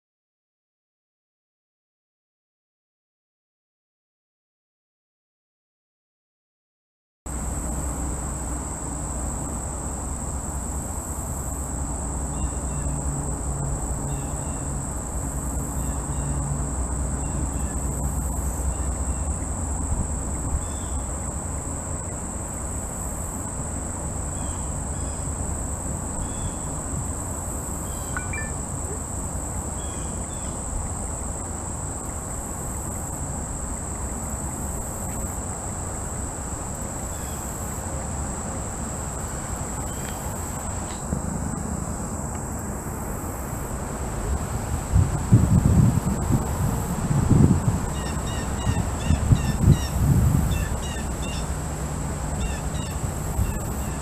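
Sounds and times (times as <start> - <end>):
insects droning: 7.3 - 54.0
faint short chirps: 28.0 - 29.0.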